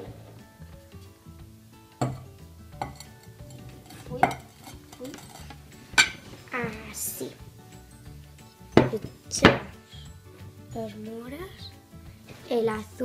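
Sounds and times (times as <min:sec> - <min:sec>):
soft background music: 0:00.0 - 0:13.0
ceramic dishes knocking: 0:02.0 - 0:06.3, 0:08.8 - 0:09.7.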